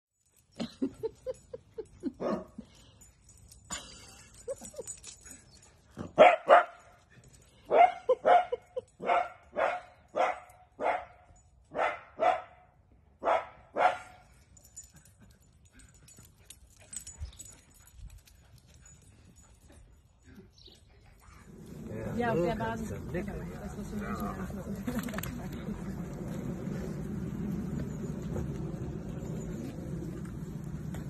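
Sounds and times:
small dog barking: 6.1s - 6.8s, 7.7s - 12.6s, 13.2s - 14.2s.

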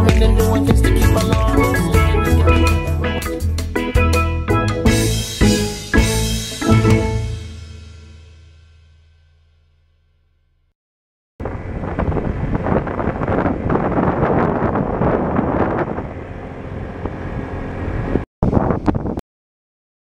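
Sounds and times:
road rumble: 11.4s - 18.2s
wind buffeting microphone: 11.4s - 19.2s.

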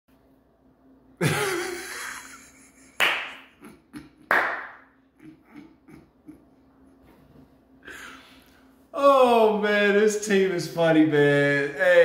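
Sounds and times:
man laughing loudly: 1.2s - 4.4s, 5.2s - 6.6s.

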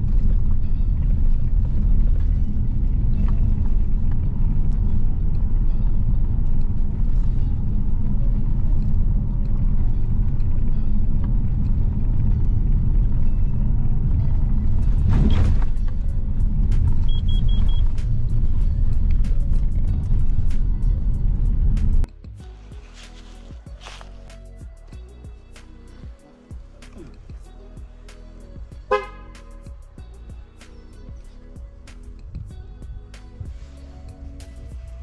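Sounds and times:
suv driving on unpaved road: 0.0s - 35.0s
background music with even beat: 14.2s - 35.0s.

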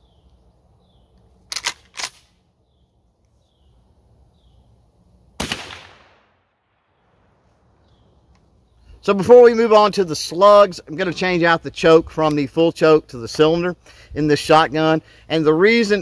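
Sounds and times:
shotgun shot with echo: 5.4s - 6.5s.

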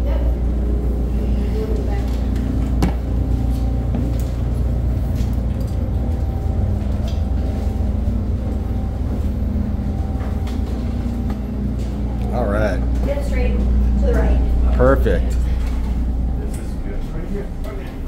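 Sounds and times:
machinery and ventilation drone: 0.0s - 18.0s
footsteps on steel deck: 1.7s - 14.6s.

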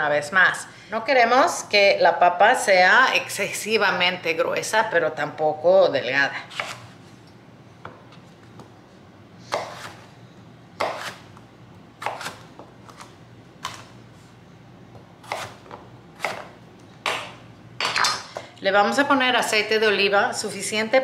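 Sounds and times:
knife cutting potato on wooden board: 6.5s - 6.9s, 9.5s - 10.1s, 10.8s - 11.3s, 12.0s - 13.9s, 15.2s - 16.5s.

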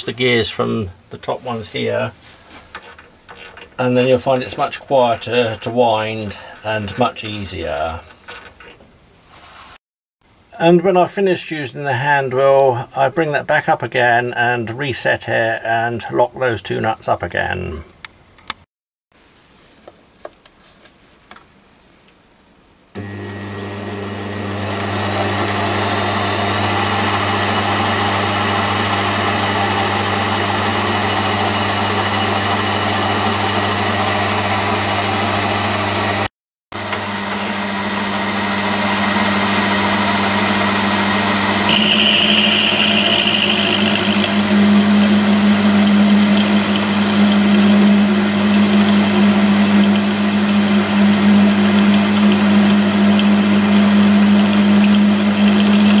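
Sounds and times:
electric spindle motor humming: 23.0s - 56.0s.

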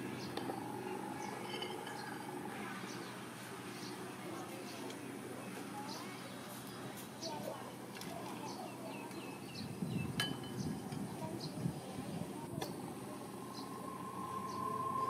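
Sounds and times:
faint bird chirps: 13.0s - 15.0s.

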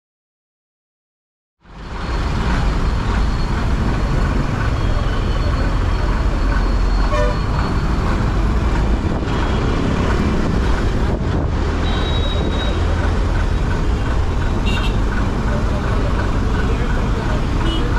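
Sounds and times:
vehicle horn toot: 7.1s - 7.5s, 11.8s - 12.8s, 14.6s - 15.0s, 17.6s - 17.9s.

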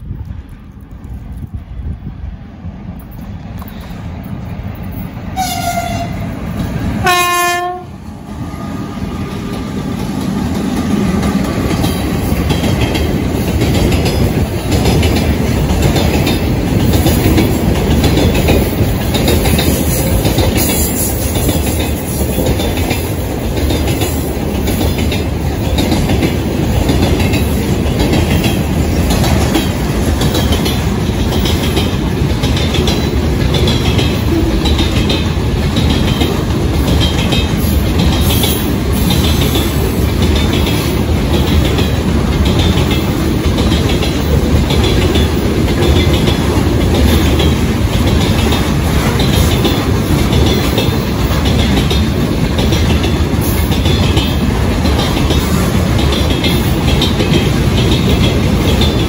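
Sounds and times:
freight train rumble: 0.0s - 59.0s
locomotive horn: 5.4s - 6.2s, 7.0s - 8.0s
wheels clacking over rail joints: 9.1s - 59.0s.

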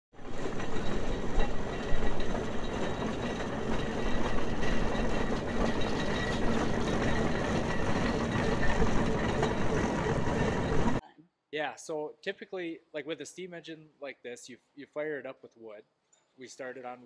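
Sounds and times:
steam traction engine driving past: 0.2s - 11.0s.

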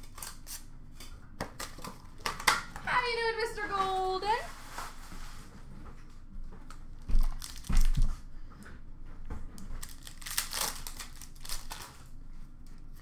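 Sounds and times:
foil wrapper crinkling and tearing: 7.1s - 8.1s, 9.7s - 12.2s.

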